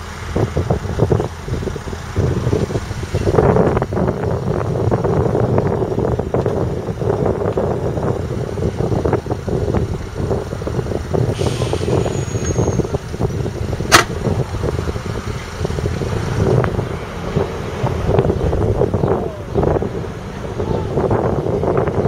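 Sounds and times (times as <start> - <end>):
diesel engine running: 0.0 - 22.0
sharp clack: 13.9 - 14.2.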